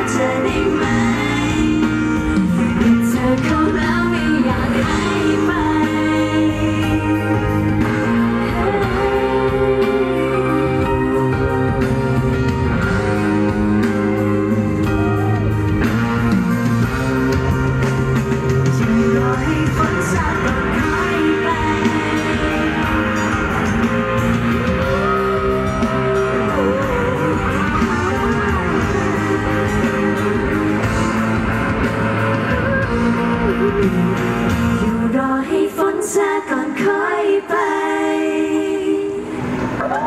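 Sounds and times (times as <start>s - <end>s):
woman singing into microphone: 0.0s - 13.0s, 18.7s - 23.8s, 24.7s - 30.4s, 32.5s - 39.4s
live pop-rock band: 0.0s - 40.0s.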